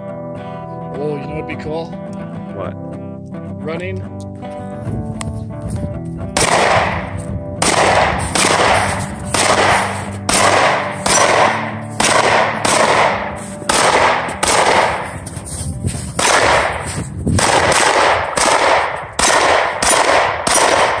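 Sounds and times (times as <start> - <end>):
pistol shots: 6.4 - 15.4, 16.2 - 21.0.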